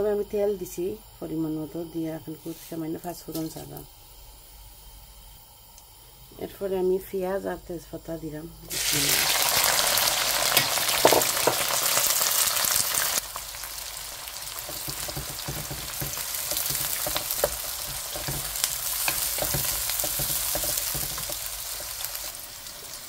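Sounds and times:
onions sizzling in hot oil: 0.0s - 7.8s, 8.5s - 23.0s
spatula scraping pan: 14.6s - 22.3s.

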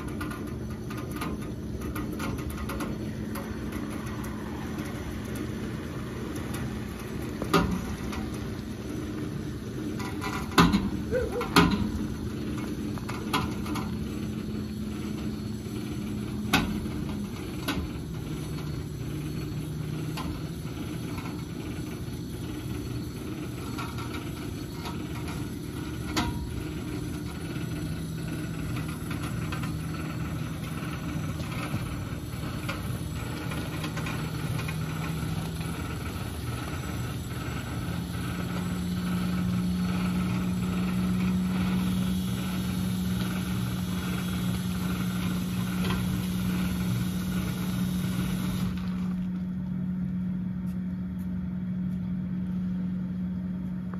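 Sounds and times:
vehicle engine running: 0.0s - 53.9s.

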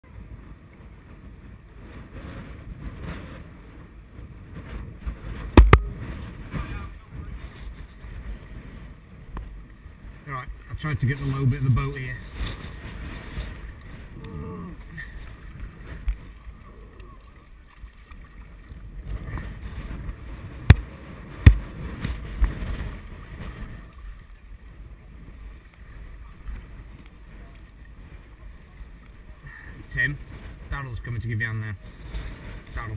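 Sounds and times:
low rumbling: 0.0s - 32.9s
water washing around boat: 0.0s - 32.9s
wind buffeting microphone: 0.0s - 32.9s
loud sharp knocks: 5.6s - 5.8s.

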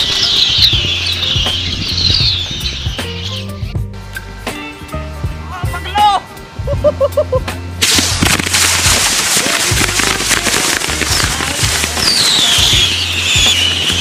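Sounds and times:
bottle rockets crackling and popping: 0.0s - 2.2s, 7.8s - 14.0s
whistle rocket falling whistle: 0.0s - 3.4s, 12.0s - 14.0s.

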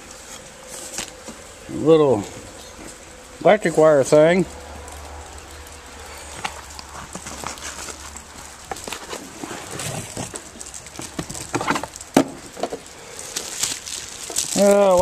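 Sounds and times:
footsteps crunching on gravel: 6.2s - 15.0s.

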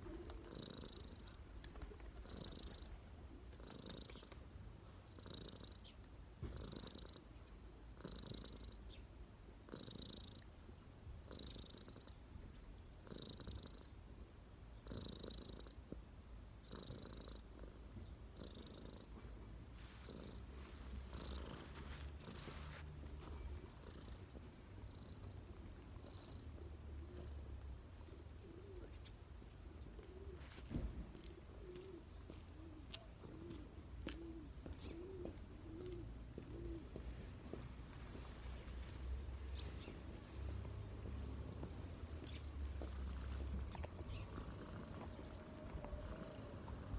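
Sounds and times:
cat purring: 0.0s - 9.0s, 9.6s - 46.9s
pigeon cooing: 26.4s - 37.2s, 38.1s - 46.9s.

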